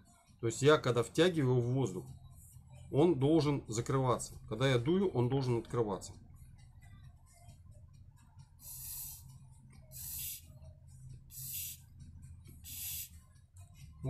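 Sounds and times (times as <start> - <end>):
short hisses of air: 8.6 - 9.2, 10.0 - 10.4, 11.3 - 11.8, 12.7 - 13.1.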